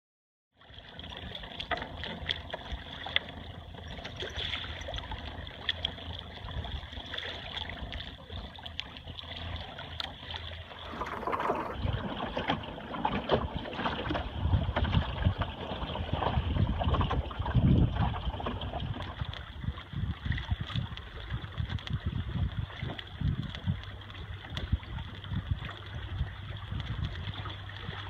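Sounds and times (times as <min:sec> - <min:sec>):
water lapping along boat hull: 0:00.5 - 0:28.0
wind rumble on microphone: 0:00.8 - 0:28.0.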